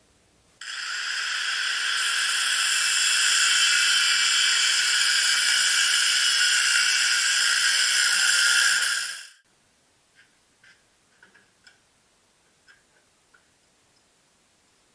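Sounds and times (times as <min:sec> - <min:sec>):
angle grinder cutting steel: 0:00.6 - 0:09.4.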